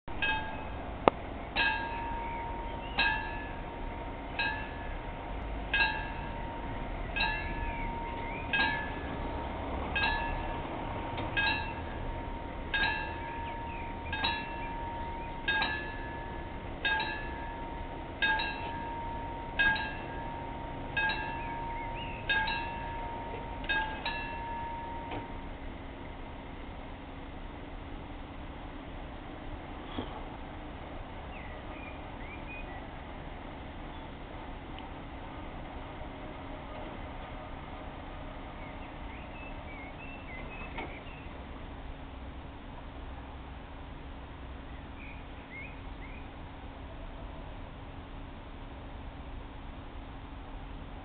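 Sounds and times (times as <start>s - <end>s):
level crossing warning bell: 0.1s - 26.5s.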